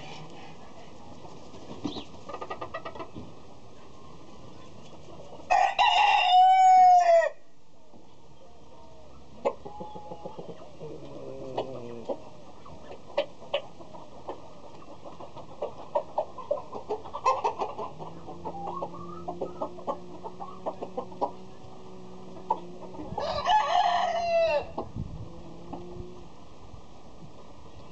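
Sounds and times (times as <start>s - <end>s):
chicken clucking: 0.0s - 7.0s, 7.8s - 26.3s
rooster crowing: 5.5s - 7.4s, 23.1s - 24.8s
faint low hum: 17.6s - 27.9s.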